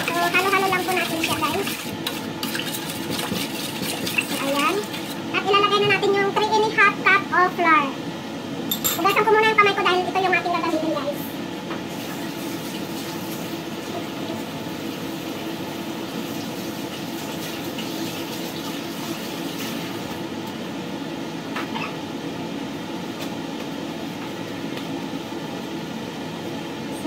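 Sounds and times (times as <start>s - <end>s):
kitchen tap running: 0.0s - 6.1s.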